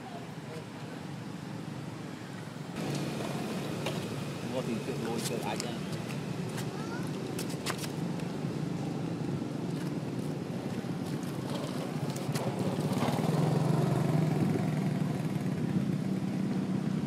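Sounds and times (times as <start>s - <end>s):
engine running: 2.6s - 17.0s.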